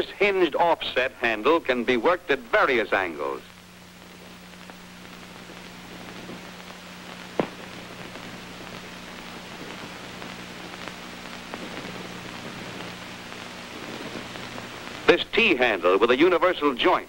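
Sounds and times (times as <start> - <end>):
film crackling hiss: 0.0 - 17.0
steady low hum: 0.0 - 17.0
sharp pop: 7.2 - 8.3.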